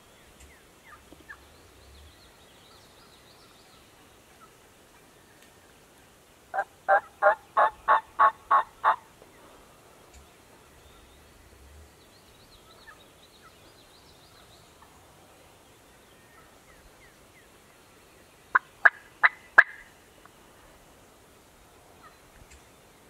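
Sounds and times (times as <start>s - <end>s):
sharp turkey calls: 6.5s - 9.1s, 18.5s - 19.9s
faint songbird chirps: 9.2s - 20.8s.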